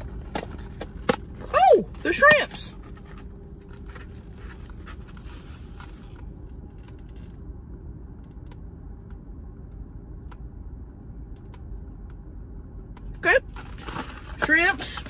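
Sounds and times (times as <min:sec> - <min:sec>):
cardboard box rustling and scraping: 0:00.0 - 0:06.2
low hum inside a car: 0:00.0 - 0:15.0.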